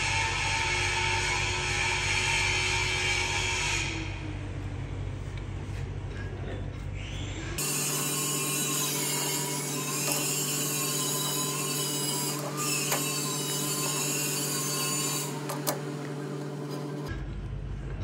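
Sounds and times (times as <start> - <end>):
machine hum: 7.6 - 17.9.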